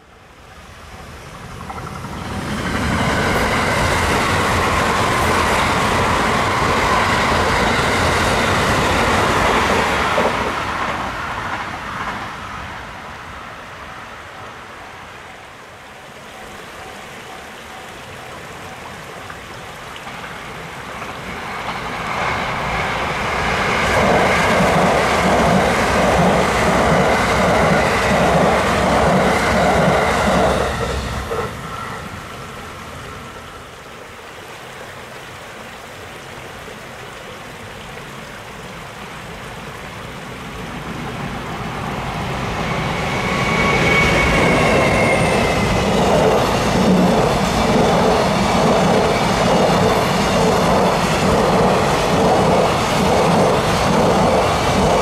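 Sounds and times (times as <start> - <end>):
train rumbling past: 0.0 - 35.2, 38.9 - 55.0
freight train rolling past: 0.4 - 15.5, 20.0 - 33.9, 40.3 - 55.0.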